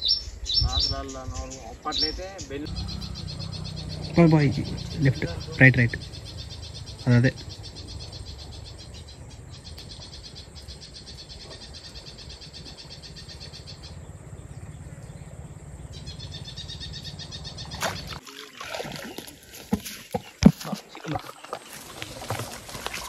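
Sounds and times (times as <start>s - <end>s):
insects chirring: 0.0s - 18.3s.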